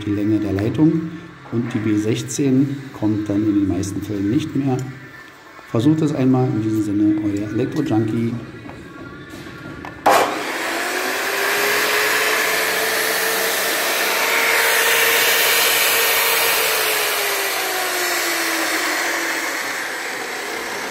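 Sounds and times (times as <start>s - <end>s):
cut-off saw motor whine: 10.0s - 20.9s.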